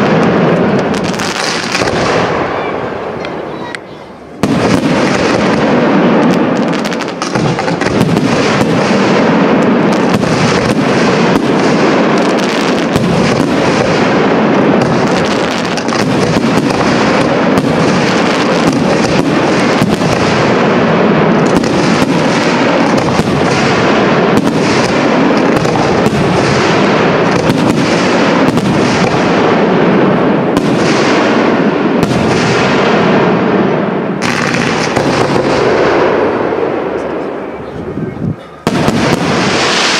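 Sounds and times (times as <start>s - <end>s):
fireworks rumble and crackle: 0.0s - 39.9s
firework shells bursting: 4.4s - 29.7s.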